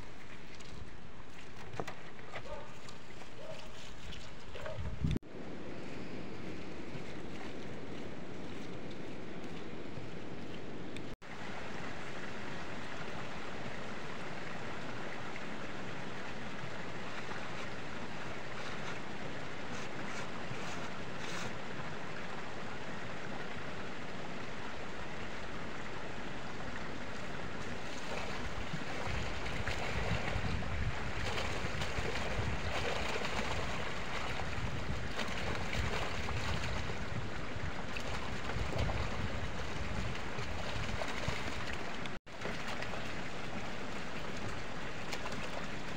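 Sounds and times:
wind on microphone: 0:04.6 - 0:10.4, 0:28.2 - 0:41.8
water pouring into pond: 0:11.2 - 0:45.9.

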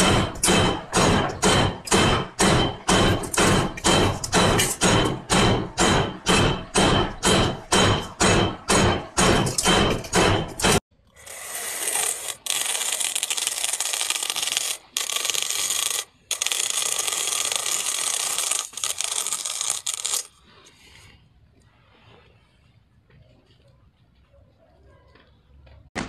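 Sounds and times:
loud knocks: 0:00.0 - 0:10.8
spiral slicer cutting fruit: 0:11.2 - 0:20.3.

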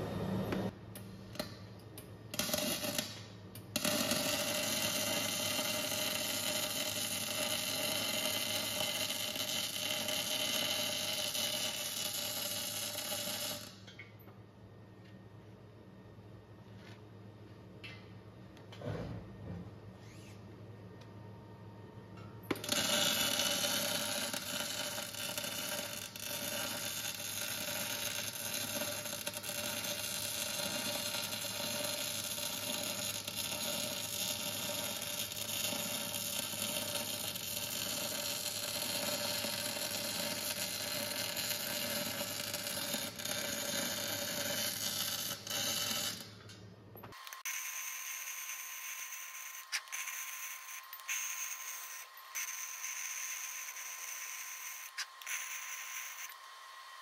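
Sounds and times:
welding arc crackling and hissing: 0:02.4 - 0:13.8, 0:22.6 - 0:46.5, 0:47.1 - 0:56.4.

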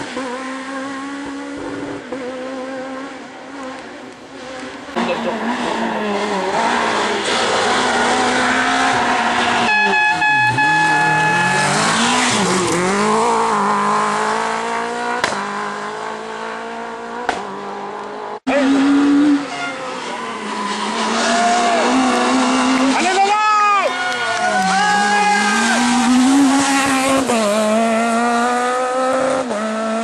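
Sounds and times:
rally car engines revving: 0:00.0 - 0:30.0.

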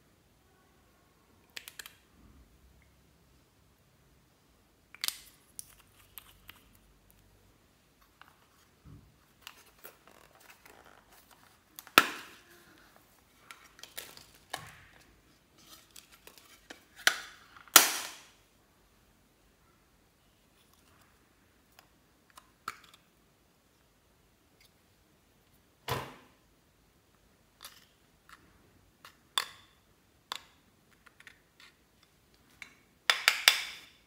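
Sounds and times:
plastic compacts snapping open: 0:01.5 - 0:02.0.

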